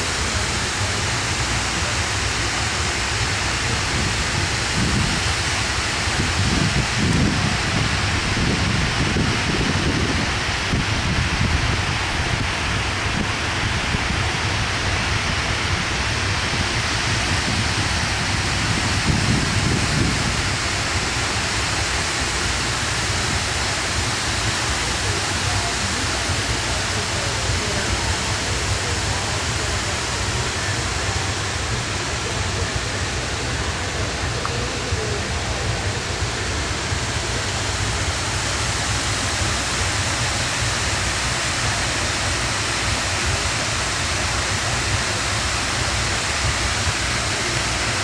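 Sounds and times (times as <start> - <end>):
boat engine rumble: 0.0 - 48.0
rushing water: 0.0 - 48.0
wind on microphone: 3.6 - 21.5.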